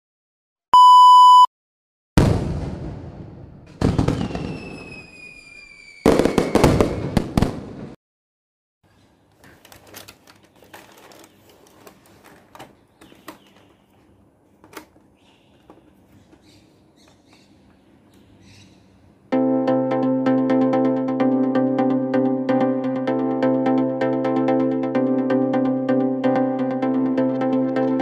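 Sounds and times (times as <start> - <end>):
firework bursts: 2.2 - 8.0
falling firework whistle: 3.9 - 7.4
hands handling cardboard box: 9.4 - 15.0.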